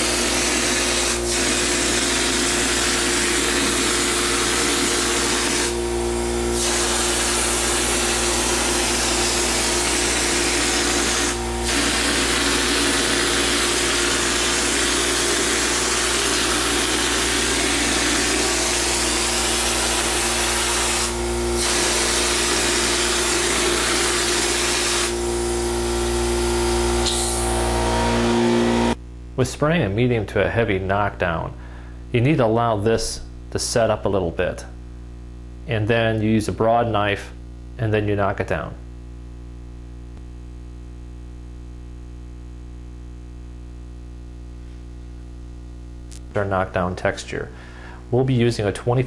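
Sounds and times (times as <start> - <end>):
spray gun hissing: 0.0 - 5.8, 6.5 - 25.2, 27.0 - 27.7
air compressor hum: 0.0 - 29.0, 47.5 - 48.1.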